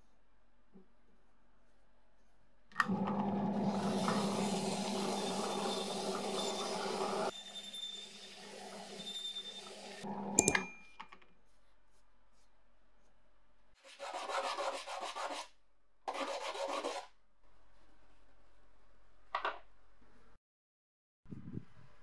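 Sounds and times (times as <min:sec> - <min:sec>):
metal rubbed on sandpaper: 0:13.8 - 0:15.5.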